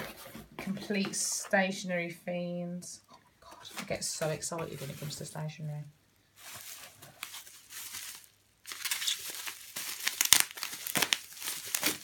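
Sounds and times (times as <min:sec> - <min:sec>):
bubble wrap crinkling: 0:03.7 - 0:12.0.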